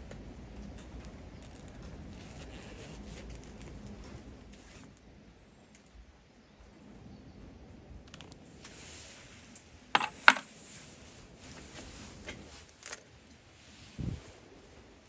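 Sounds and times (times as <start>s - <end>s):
coins jingling: 10.0s - 10.4s
metallic clinks: 10.0s - 10.5s.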